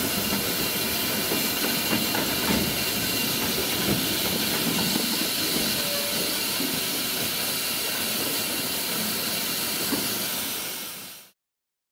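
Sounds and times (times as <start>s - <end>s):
steam hissing from locomotive: 0.0s - 11.4s.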